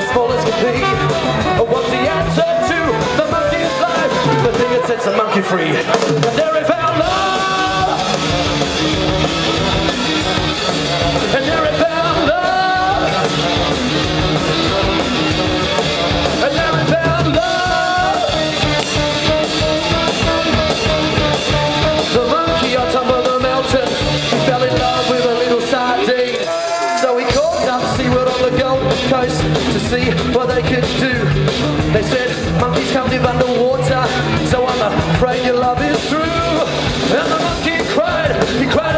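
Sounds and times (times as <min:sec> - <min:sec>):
live band playing: 0:00.0 - 0:38.9.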